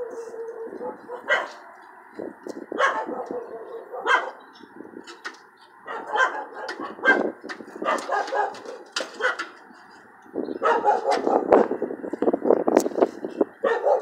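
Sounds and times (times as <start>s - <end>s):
dogs barking: 0.0s - 1.9s, 2.7s - 4.6s, 5.8s - 9.6s, 10.5s - 11.8s, 13.6s - 14.0s.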